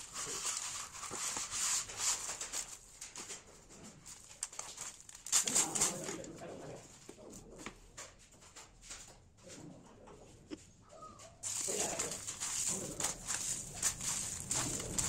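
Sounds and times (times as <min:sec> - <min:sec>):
dry noodles crunching by hand: 0:04.1 - 0:06.3, 0:11.4 - 0:15.0.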